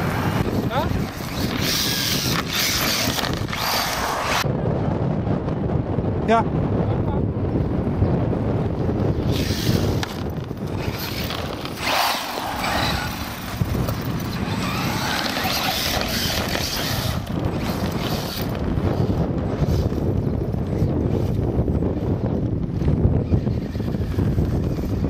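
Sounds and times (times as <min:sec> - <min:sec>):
toy truck motor whining: 0:00.0 - 0:04.5, 0:09.2 - 0:21.4, 0:22.8 - 0:25.0
wind rumble on microphone: 0:00.0 - 0:25.0.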